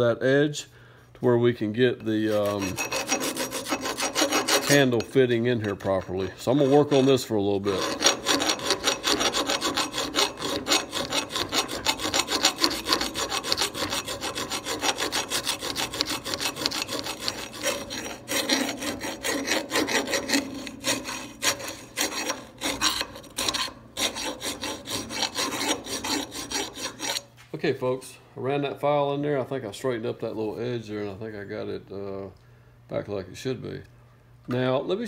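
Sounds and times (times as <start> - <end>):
file rasping on steel: 2.0 - 27.3.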